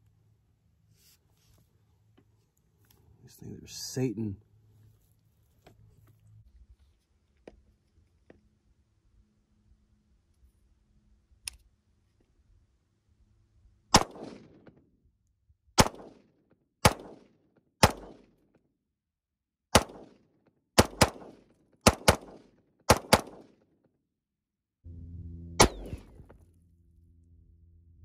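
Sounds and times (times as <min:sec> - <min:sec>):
gunshots with echo: 0:14.0 - 0:14.7, 0:16.8 - 0:18.3, 0:19.7 - 0:20.2, 0:20.8 - 0:23.5, 0:25.6 - 0:26.2
steady low hum: 0:24.8 - 0:28.0.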